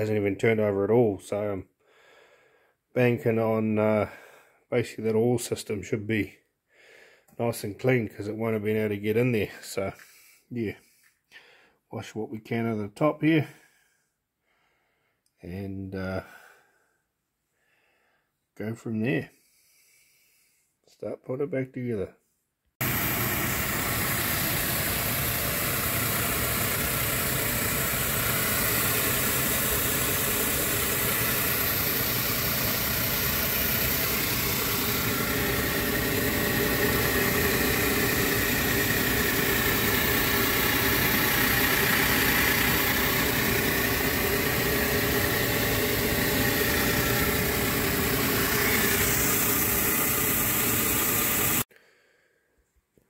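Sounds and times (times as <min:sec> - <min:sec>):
steam cleaner running: 0:22.8 - 0:51.6
water jet blasting: 0:22.8 - 0:51.6.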